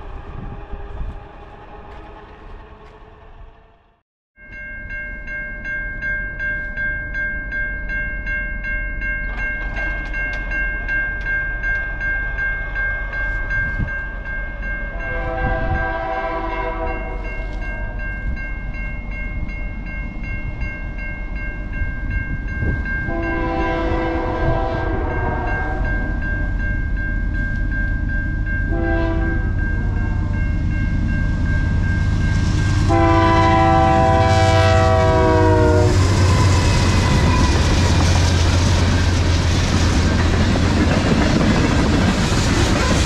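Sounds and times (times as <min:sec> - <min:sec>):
train rumble: 0:00.0 - 0:04.0, 0:08.6 - 0:43.0
crossing warning bell ringing: 0:04.4 - 0:43.0
locomotive air horn blasts: 0:15.0 - 0:17.6, 0:23.1 - 0:26.1, 0:28.7 - 0:30.2, 0:32.8 - 0:37.7.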